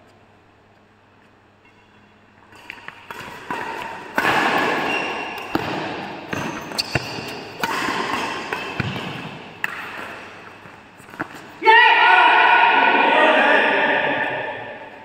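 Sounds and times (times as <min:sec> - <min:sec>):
racket striking shuttlecock: 0:02.6 - 0:11.4
shoe squeaks on court: 0:04.6 - 0:05.6, 0:06.3 - 0:09.2.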